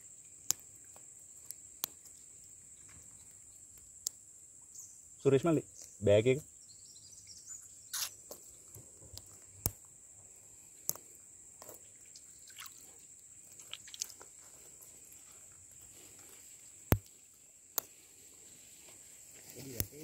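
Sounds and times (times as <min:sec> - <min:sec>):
crickets chirping: 0:00.0 - 0:20.0
water dripping and splashing: 0:11.6 - 0:14.4.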